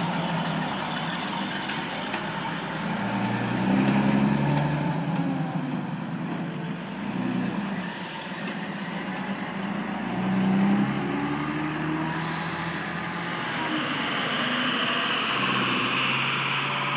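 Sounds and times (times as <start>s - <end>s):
fire truck engine running: 0.0s - 10.2s.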